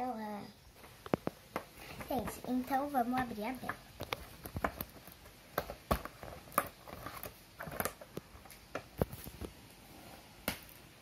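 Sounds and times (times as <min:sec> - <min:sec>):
plastic packaging crinkling and clicking: 0:03.9 - 0:09.6.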